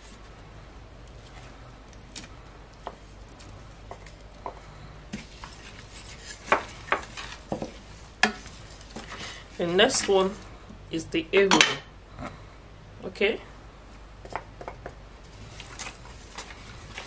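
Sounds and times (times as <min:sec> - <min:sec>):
spatula knocking and scraping pot: 0:03.8 - 0:10.4.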